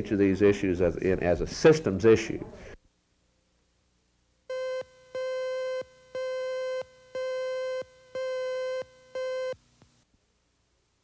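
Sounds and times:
buzzy electronic beeps: 4.5 - 9.6.

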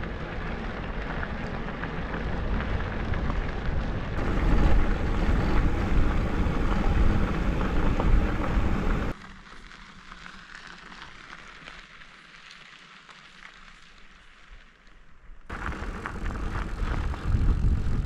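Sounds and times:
tyres rolling on gravel: 0.0 - 9.2, 15.5 - 18.0
wind rumbling over microphone: 0.0 - 9.2, 15.5 - 18.0.

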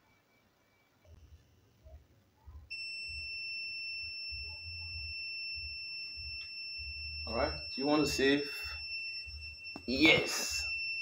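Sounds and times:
high-pitched electronic beep: 2.7 - 11.0.

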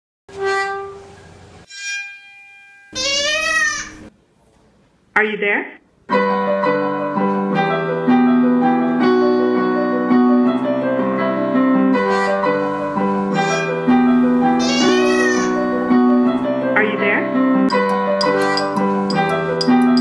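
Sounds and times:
digital piano melody: 15.5 - 20.0.

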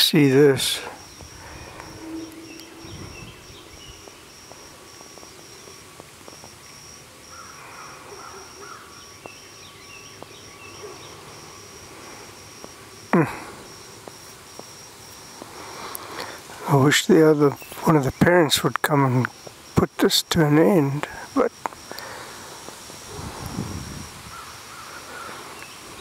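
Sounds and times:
insect chirping in a pulsing trill: 0.0 - 26.0
faint bird chirps: 0.6 - 5.8.

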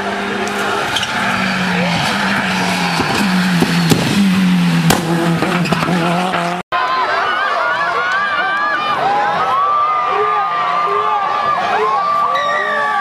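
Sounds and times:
rally car engine at high revs: 0.0 - 6.6.

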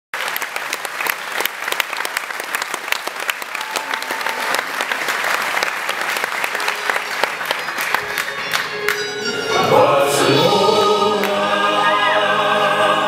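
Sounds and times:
audience applause: 0.1 - 9.4.

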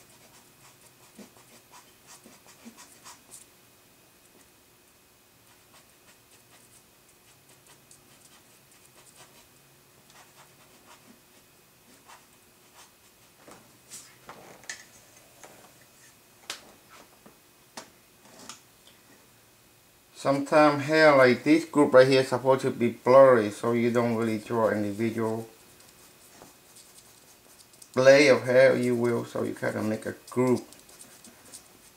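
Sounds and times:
drawing tool scratching on paper: 0.0 - 3.2, 23.8 - 31.9
sharp pencil strokes and taps: 23.9 - 28.1, 28.7 - 31.9.

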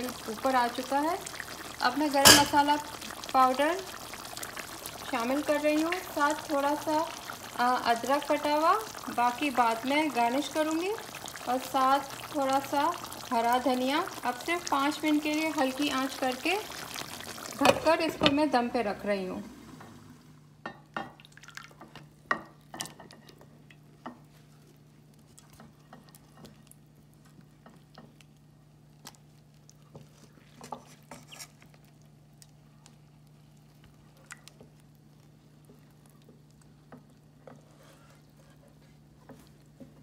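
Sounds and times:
curry stirred in metal pot: 21.7 - 40.0.

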